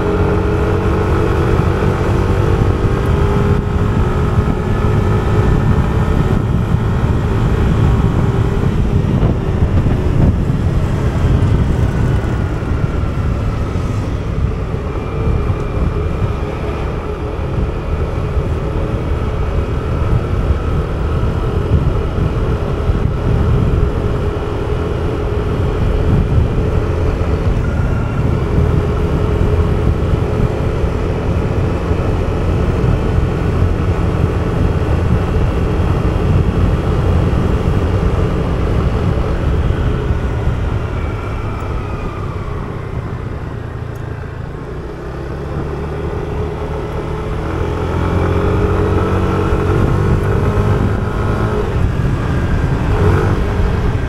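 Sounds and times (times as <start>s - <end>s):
scooter engine humming: 0.0s - 54.0s
wind on microphone: 0.0s - 54.0s.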